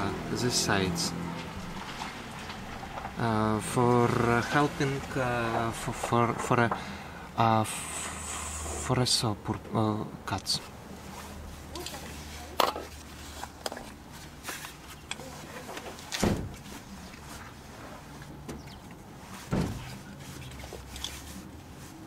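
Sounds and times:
dull knocks: 19.5 - 19.9.

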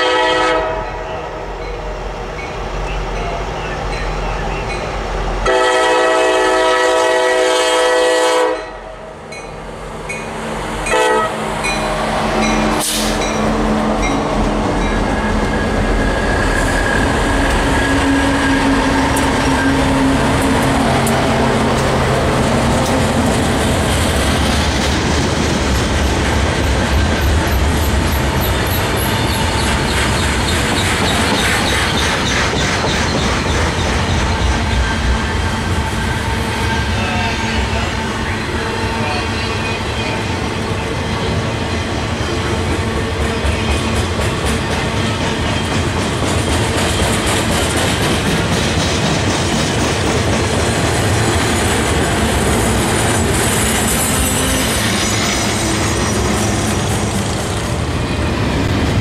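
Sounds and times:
train air horn blasts: 0.0 - 1.5, 5.4 - 9.0, 10.9 - 13.9
diesel locomotive engines running: 0.0 - 59.0
train wheels clicking over rail joints: 11.6 - 36.3, 41.7 - 58.0.

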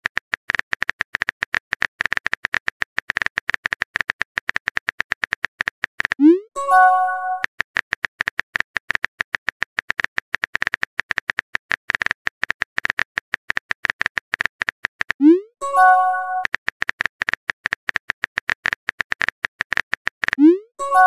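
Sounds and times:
message sent chime: 6.2 - 7.4, 15.2 - 16.4, 20.6 - 21.0.

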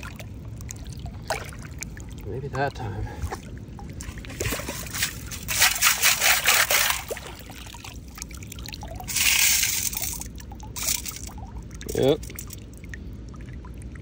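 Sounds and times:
water pouring through metal scoop: 4.4 - 7.8, 8.5 - 12.6.

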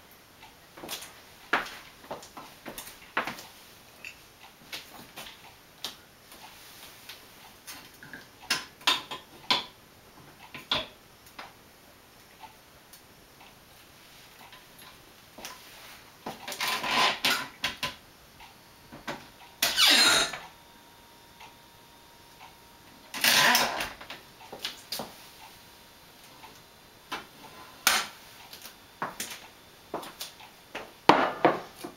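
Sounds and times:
wine corker lever squeaking: 19.6 - 20.4.

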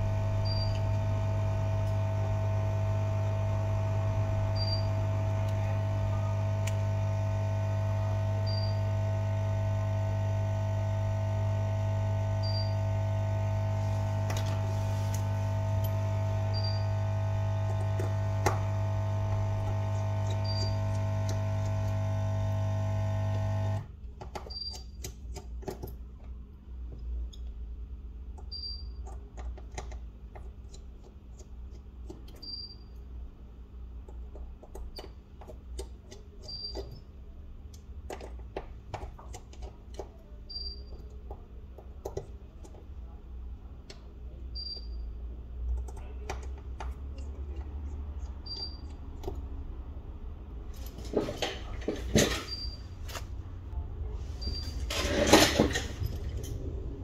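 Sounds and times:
electrical hum: 0.0 - 57.0
faint short beep: 12.4 - 12.9.

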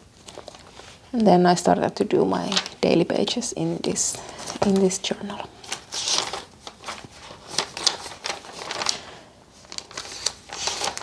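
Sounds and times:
notebook pages turning: 0.2 - 1.0, 5.6 - 9.0, 9.6 - 11.0.

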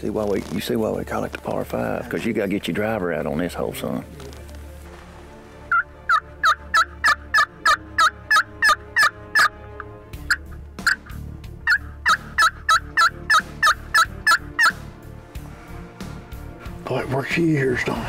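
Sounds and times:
turkey call yelps: 5.7 - 14.8.

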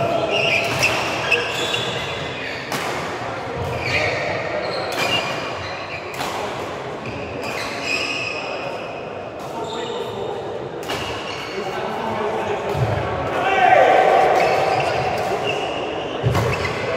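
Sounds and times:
players' voices echoing: 0.0 - 16.9
racket hitting shuttlecock: 2.6 - 4.1, 14.2 - 16.9.

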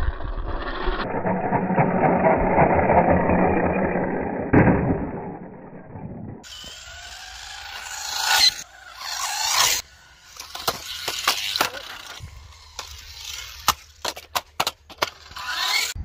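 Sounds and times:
toy motor revving: 6.4 - 16.0
tyres scraping over concrete: 6.4 - 16.0.

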